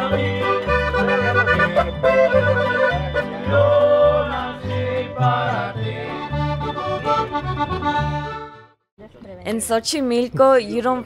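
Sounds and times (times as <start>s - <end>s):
guitar: 0.0s - 8.6s
accordion: 0.0s - 8.8s
bass line: 0.0s - 8.8s.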